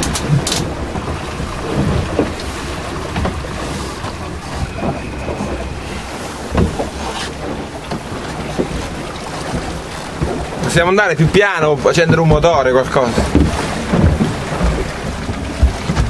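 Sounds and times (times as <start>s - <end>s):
sea rushing along hull: 0.0s - 16.0s
wind buffeting microphone: 0.0s - 16.0s
short knocks: 3.1s - 8.9s.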